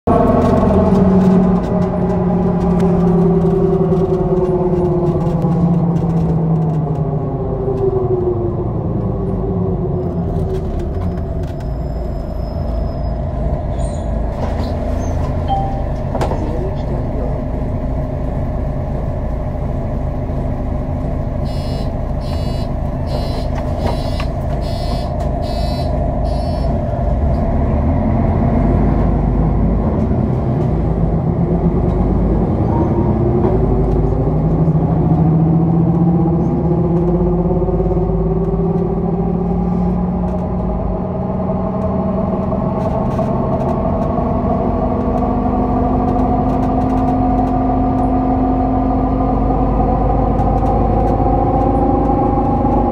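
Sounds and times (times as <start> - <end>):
bus pulling away: 0.1 - 52.9
short beeps: 15.5 - 16.0, 21.5 - 26.7
whining tones rising in pitch: 21.3 - 29.7.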